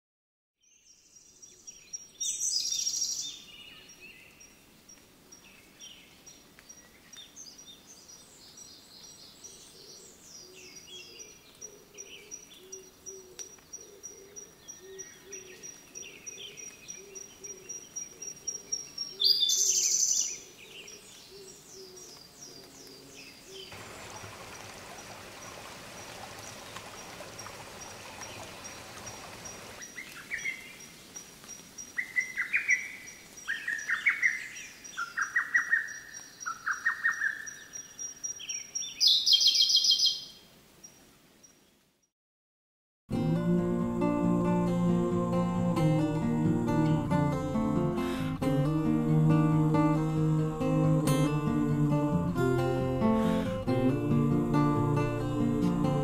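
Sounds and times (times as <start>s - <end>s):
birds chirping and trilling: 0.6s - 41.8s
loud high bird calls: 31.8s - 40.4s.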